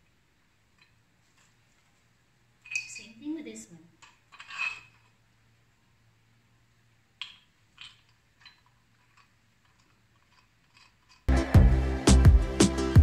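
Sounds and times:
metal tubes knocking and clinking: 0:02.6 - 0:03.2, 0:04.0 - 0:05.2, 0:07.2 - 0:11.3
metal scrape: 0:04.3 - 0:05.1.

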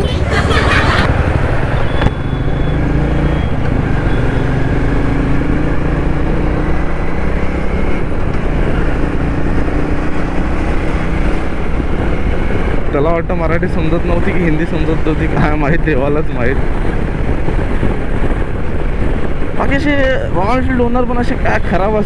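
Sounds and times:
motorcycle engine running: 0:00.0 - 0:21.9
road and wind noise: 0:00.0 - 0:22.0.

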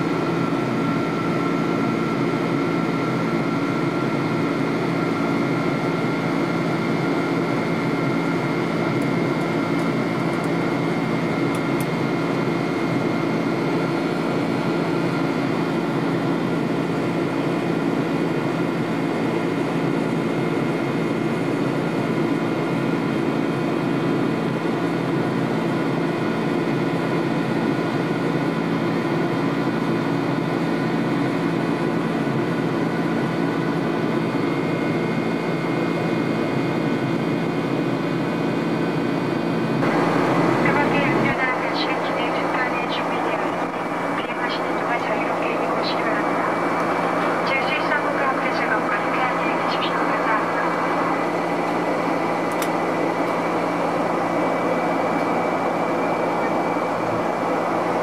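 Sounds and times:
jet engine and airflow drone: 0:00.0 - 0:58.0
faint high whine: 0:39.8 - 0:58.0.

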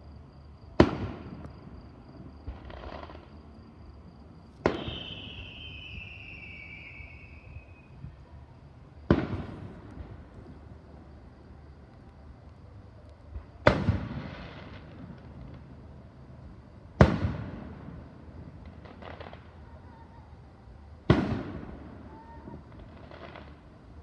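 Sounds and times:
firework booms with echo: 0:00.8 - 0:01.8, 0:04.6 - 0:06.9, 0:09.0 - 0:10.6, 0:13.3 - 0:15.7, 0:17.0 - 0:19.5, 0:21.0 - 0:23.6
firework crackling: 0:02.4 - 0:03.5, 0:04.5 - 0:20.0, 0:21.0 - 0:24.0.

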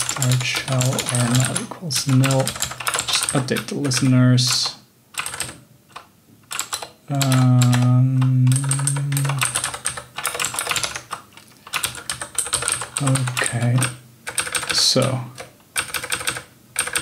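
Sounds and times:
rapid keyboard typing: 0:00.0 - 0:17.0
man humming low: 0:07.1 - 0:09.5.

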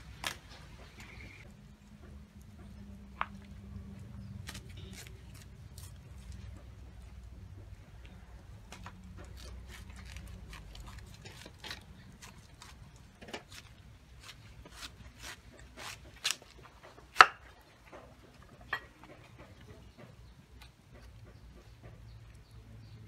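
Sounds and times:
cleaver chopping on wooden board: 0:17.1 - 0:17.5.

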